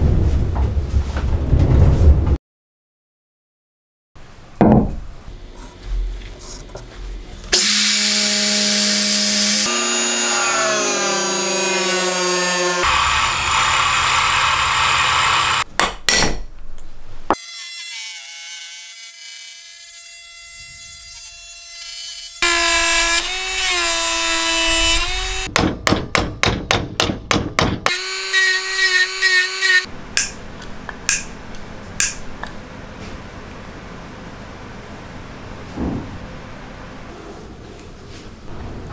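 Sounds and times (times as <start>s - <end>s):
drill press boring into wood: 7.6s - 15.6s
rotary tool whining carving wood: 7.6s - 15.6s, 22.4s - 25.5s, 27.9s - 29.9s.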